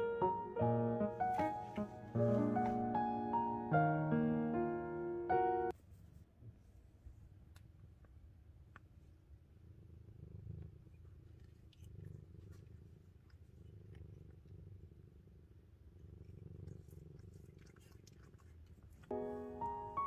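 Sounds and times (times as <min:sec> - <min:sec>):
kitten purring: 0:09.4 - 0:20.0.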